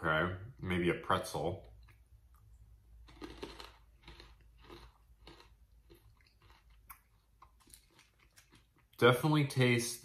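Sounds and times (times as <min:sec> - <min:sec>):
crunchy chewing: 0:01.8 - 0:09.0.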